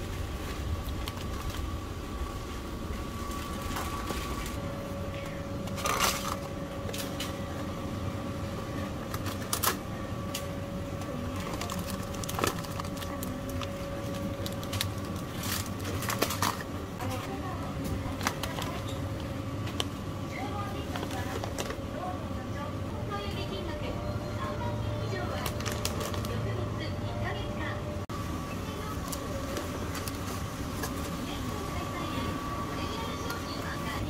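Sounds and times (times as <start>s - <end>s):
refrigerator hum with faint tones: 0.0s - 34.0s
plastic food packs crinkling: 11.3s - 16.7s, 25.4s - 26.4s.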